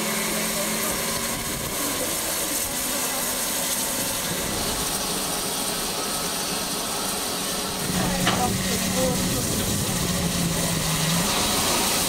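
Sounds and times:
steam locomotive hissing: 0.0s - 12.0s.

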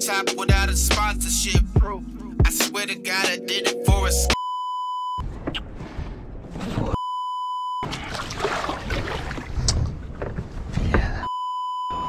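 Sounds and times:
wind and water rumbling: 7.8s - 11.0s.

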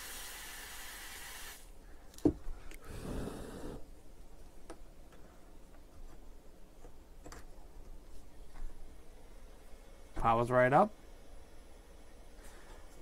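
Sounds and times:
aerosol spray hissing: 0.0s - 1.6s.

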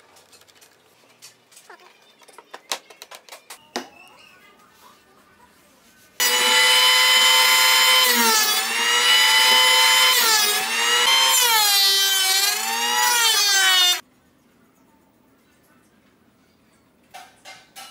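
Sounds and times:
electric planer whining: 6.2s - 14.0s.

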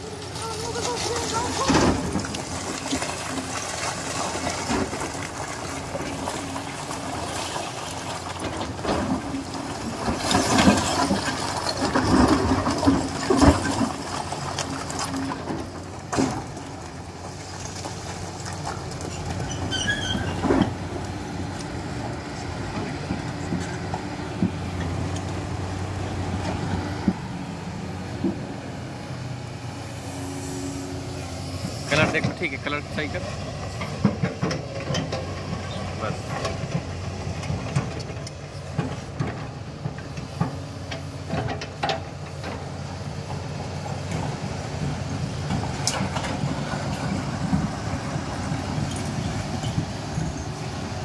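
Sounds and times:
excavator running: 0.0s - 51.0s
knocks and clanks: 31.9s - 42.6s.

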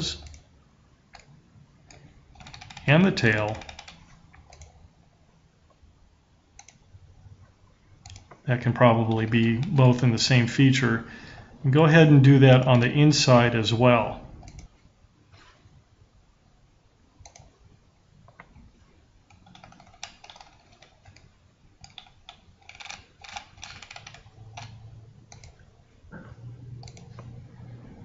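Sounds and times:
computer keyboard clicking: 1.9s - 4.8s, 6.6s - 6.8s, 8.0s - 8.4s, 14.4s - 14.7s, 17.2s - 17.5s, 19.3s - 25.6s, 26.8s - 27.3s.

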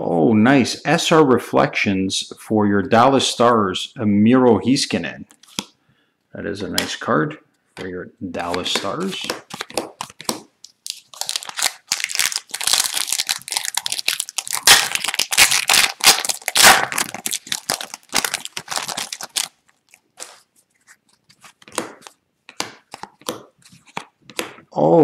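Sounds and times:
foil wrapper tearing and crinkling: 9.5s - 20.5s.

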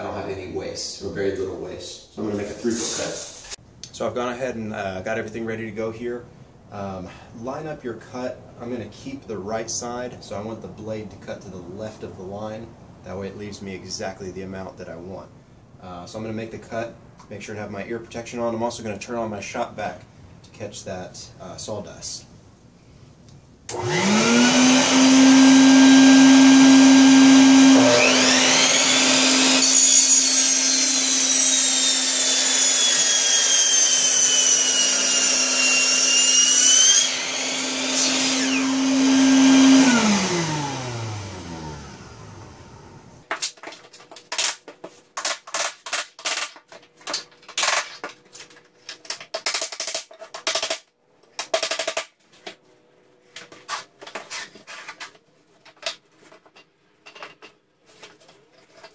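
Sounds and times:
miter saw cutting plank: 23.7s - 42.6s
shop vacuum humming: 23.7s - 43.2s.

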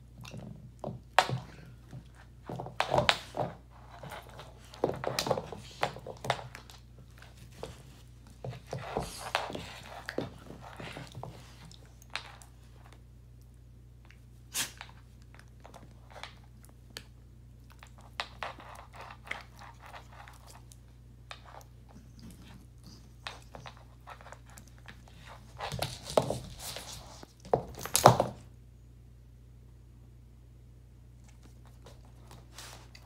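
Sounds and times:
dog scuffling on wooden floor: 0.8s - 13.0s, 17.8s - 28.5s, 31.3s - 33.0s.

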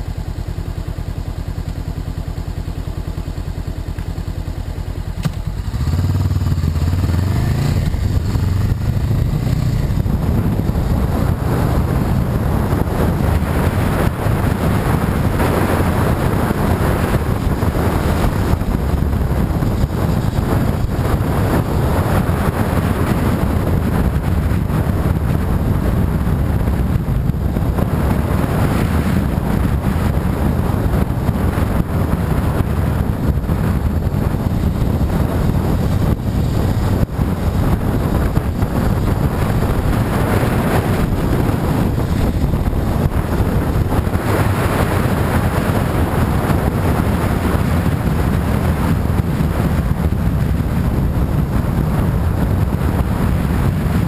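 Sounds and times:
motorcycle and road noise: 0.0s - 54.0s
wind rush on microphone: 0.0s - 54.0s.

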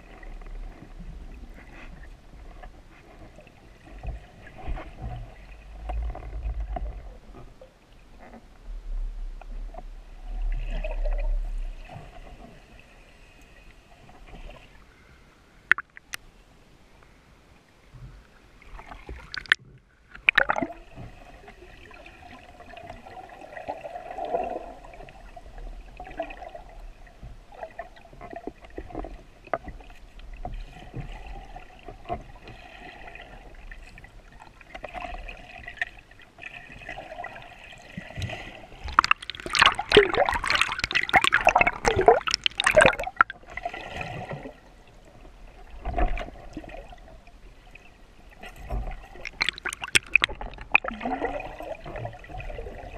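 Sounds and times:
water gurgling and sloshing: 0.0s - 16.8s, 17.6s - 52.9s
churning water: 20.2s - 52.9s.

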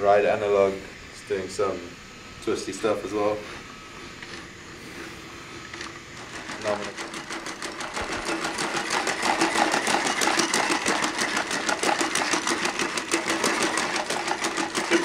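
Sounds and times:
mechanical clicking from joints: 5.7s - 15.0s.

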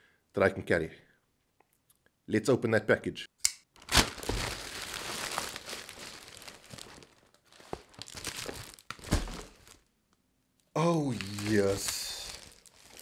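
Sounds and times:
plastic bag crinkling: 3.8s - 9.9s, 11.0s - 13.0s.

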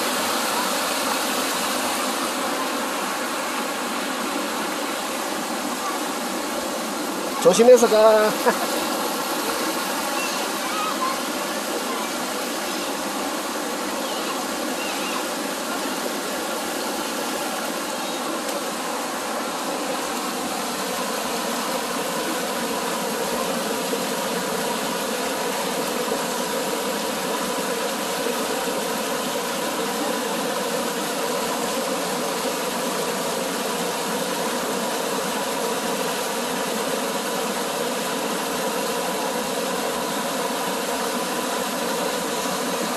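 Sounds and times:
stream water rushing over rocks: 0.0s - 42.9s.

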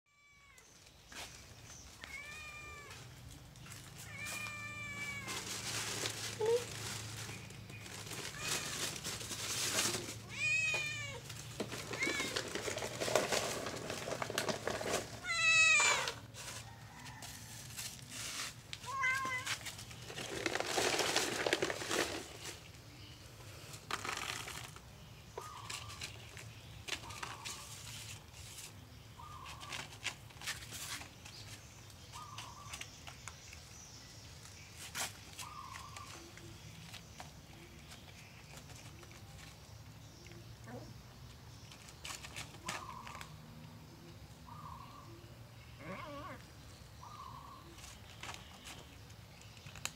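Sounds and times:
rustling: 0.2s - 40.4s, 41.2s - 43.4s
cat meowing: 2.0s - 3.0s, 4.0s - 5.4s
cat crunching dry kibble: 18.9s - 22.8s.

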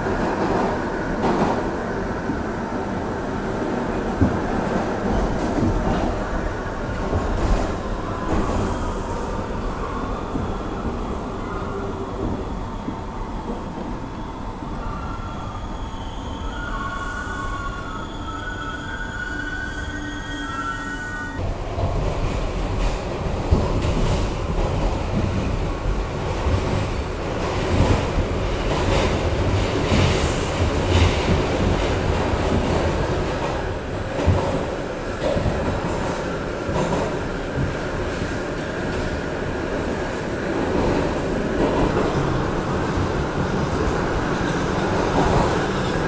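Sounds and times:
subway train rumble in tunnel: 0.0s - 46.0s
train wheels squealing: 14.8s - 21.4s.

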